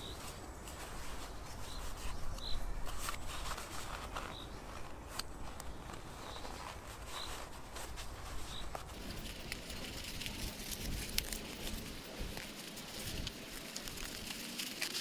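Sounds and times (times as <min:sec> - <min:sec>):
paper rustling and rubbing: 0:00.0 - 0:15.0.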